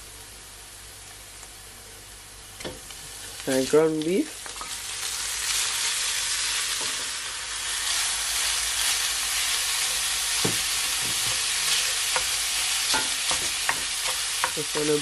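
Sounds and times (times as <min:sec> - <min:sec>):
meat sizzling in oil: 0:02.4 - 0:15.0
wooden spoon tapping pan: 0:12.1 - 0:15.0.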